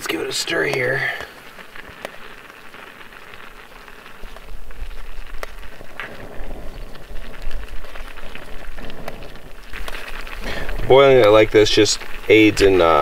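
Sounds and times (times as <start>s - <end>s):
pot boiling and stirred: 0.0s - 13.0s
wind rumble on microphone: 3.5s - 13.0s.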